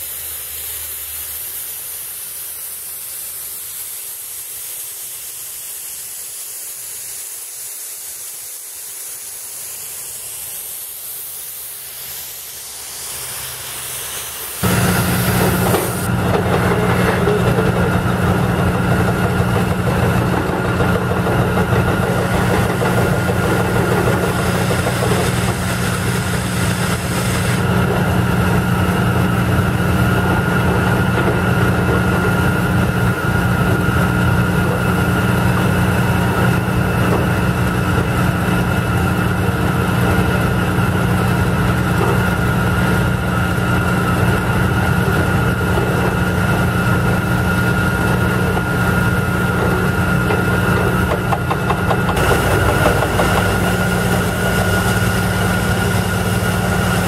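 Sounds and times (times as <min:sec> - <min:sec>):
pneumatic drilling rig drone: 0:09.2 - 0:57.0
high whine: 0:14.6 - 0:22.0.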